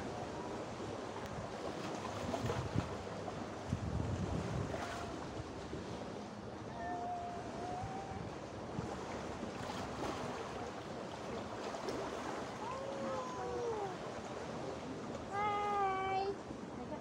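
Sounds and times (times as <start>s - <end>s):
wind rumble: 2.2s - 6.1s.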